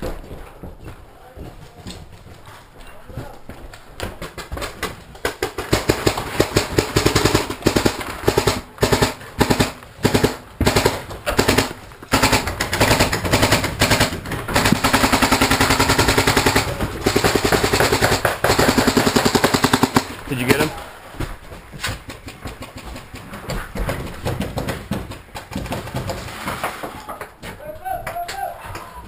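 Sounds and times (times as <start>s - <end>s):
paintball marker firing: 4.3s - 20.2s.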